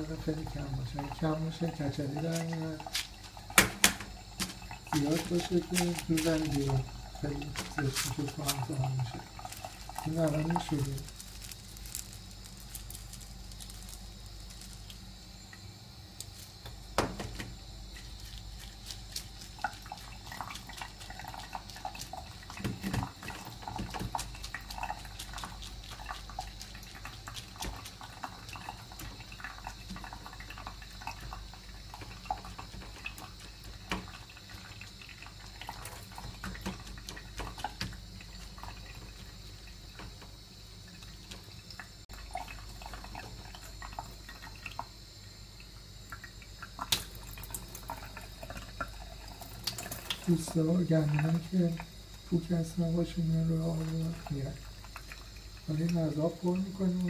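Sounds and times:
small splashes: 0.0 - 15.0, 16.2 - 45.0
grains crackling clicks: 0.0 - 45.0, 46.2 - 57.0
tap water running onto grains: 0.0 - 57.0
fingers rubbing wet grains: 4.9 - 15.0.

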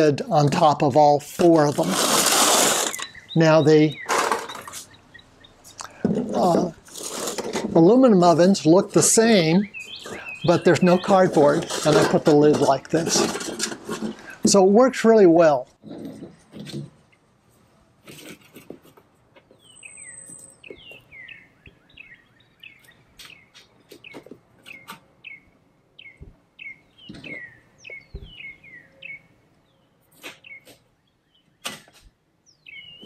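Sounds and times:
songbird whistling: 2.9 - 5.7, 9.6 - 11.0, 19.6 - 29.3, 32.5 - 33.0.

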